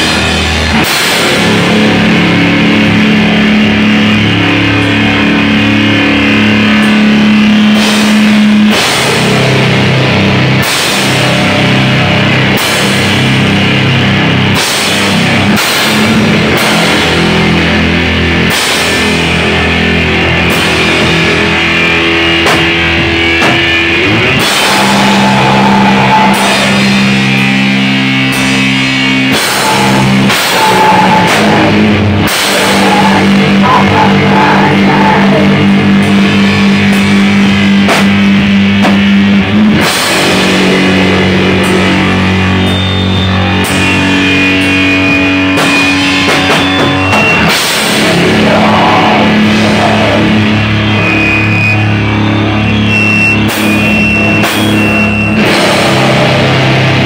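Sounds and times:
drum kit hits: 0:00.0 - 0:57.0
heavy guitar and bass chords: 0:00.0 - 0:57.0.

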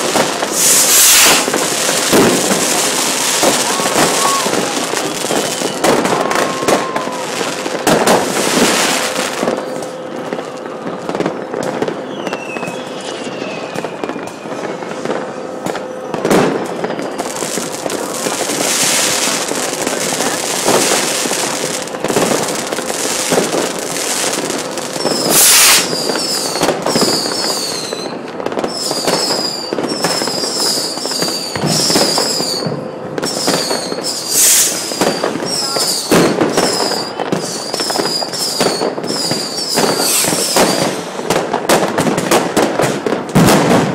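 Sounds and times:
fireworks bangs: 0:00.0 - 0:43.9
fireworks crackle: 0:00.0 - 0:43.9
high falling whistles: 0:02.9 - 0:07.3, 0:12.0 - 0:15.0, 0:25.0 - 0:41.1.

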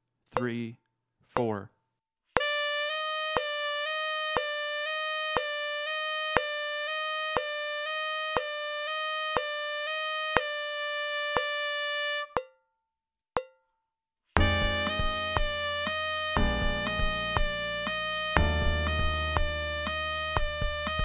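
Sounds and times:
metronome clicking: 0:00.4 - 0:00.6, 0:04.3 - 0:04.5, 0:05.3 - 0:05.6, 0:06.3 - 0:06.6, 0:07.4 - 0:07.6
tenor saxophone playing high notes: 0:02.4 - 0:12.4, 0:14.4 - 0:21.0.

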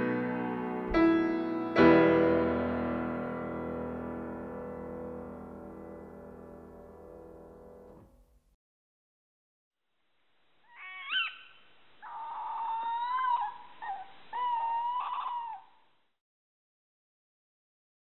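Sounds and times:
music: 0:00.0 - 0:08.2
animal calling: 0:10.6 - 0:15.8.

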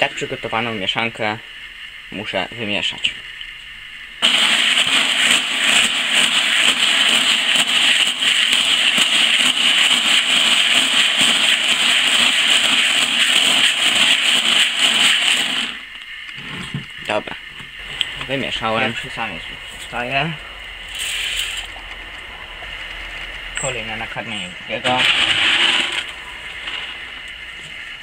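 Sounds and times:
grain rattling in plastic bucket: 0:04.2 - 0:15.8, 0:24.8 - 0:27.3.

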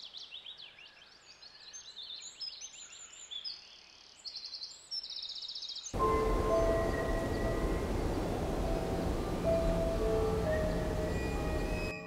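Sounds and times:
small birds chirping: 0:00.2 - 0:12.0
musical sting with bell tones: 0:06.0 - 0:12.0.

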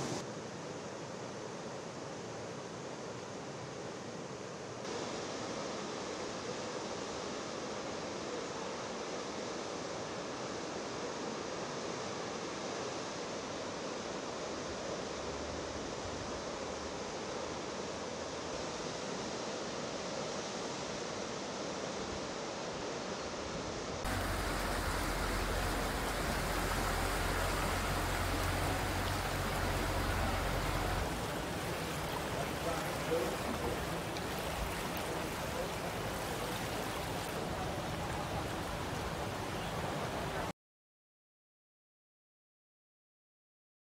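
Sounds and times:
floodwater rushing: 0:00.0 - 0:00.2, 0:24.1 - 0:40.5.

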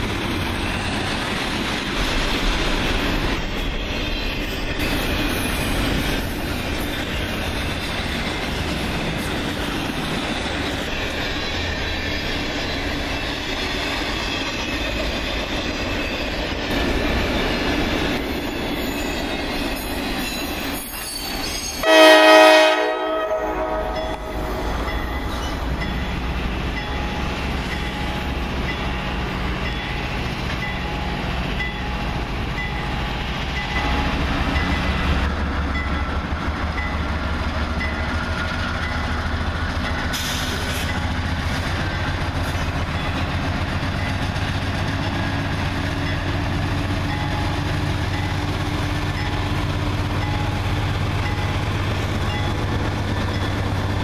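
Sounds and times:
locomotive horn blast: 0:21.8 - 0:24.7.

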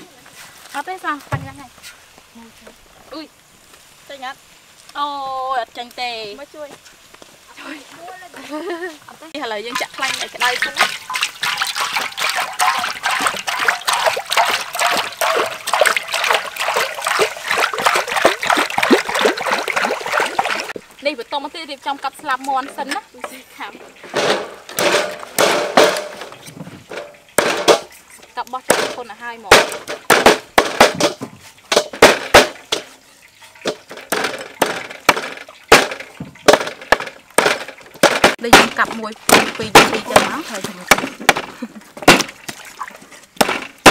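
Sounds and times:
oil pouring into a metal wok: 0:09.7 - 0:21.0.

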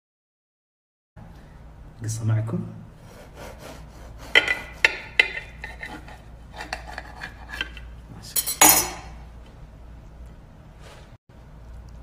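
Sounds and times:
knife clinking on plate: 0:04.4 - 0:05.9, 0:08.4 - 0:09.2
knife clattering on plate: 0:04.4 - 0:07.7, 0:08.4 - 0:09.2.

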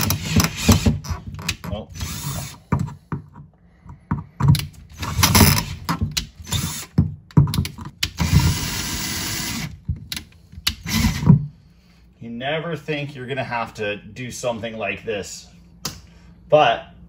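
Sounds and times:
cordless drill boring: 0:00.0 - 0:02.6, 0:04.9 - 0:07.0, 0:08.1 - 0:09.7, 0:10.8 - 0:11.3.

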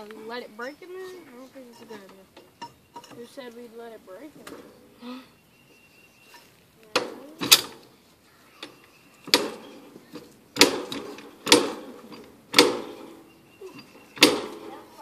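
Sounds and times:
jack metal clanks: 0:06.4 - 0:07.8, 0:08.6 - 0:15.0.

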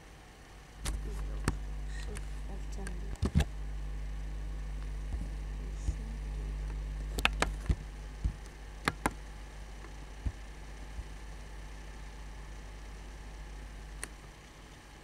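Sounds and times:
low electrical hum: 0:00.0 - 0:15.0
computer mouse clicks: 0:07.2 - 0:07.8, 0:08.4 - 0:09.2.

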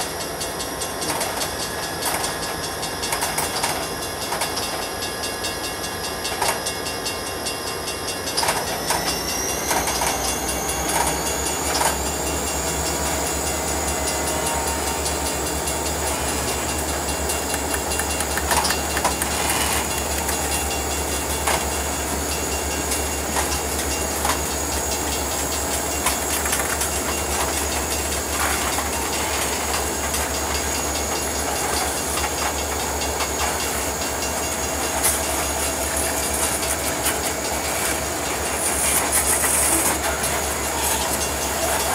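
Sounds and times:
freight train rolling past: 0:00.0 - 0:41.9
thin high whine: 0:04.8 - 0:41.9
wheels and couplers clunking: 0:08.4 - 0:41.9.

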